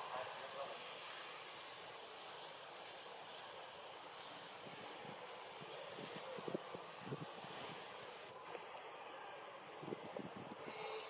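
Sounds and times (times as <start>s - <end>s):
high-pitched insect drone: 9.0s - 11.0s.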